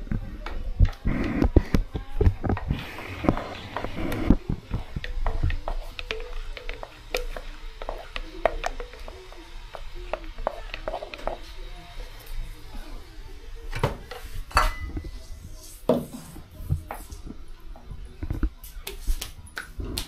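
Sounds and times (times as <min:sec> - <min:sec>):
stick stirring thick paste: 0:00.0 - 0:13.0.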